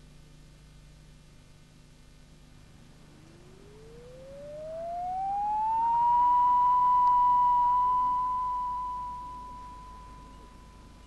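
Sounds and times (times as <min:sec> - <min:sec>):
rising electronic tone: 0:03.0 - 0:10.9.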